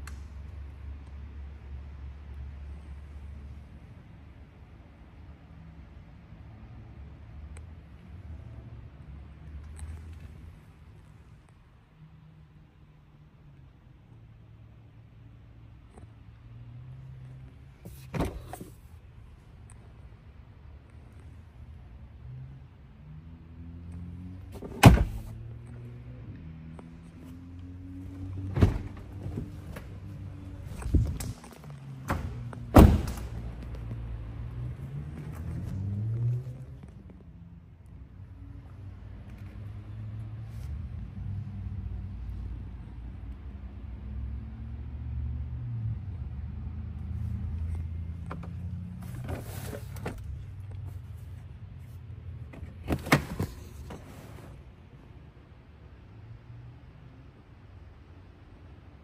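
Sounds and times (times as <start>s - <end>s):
low hum inside car cabin: 0.0s - 44.0s, 45.5s - 59.0s
car doors thunking: 24.6s - 25.3s, 28.5s - 29.9s, 32.0s - 33.4s.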